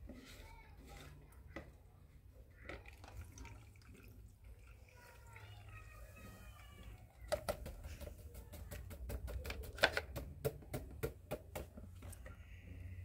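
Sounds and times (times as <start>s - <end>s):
paintbrush knocking plastic bucket: 7.2s - 12.0s.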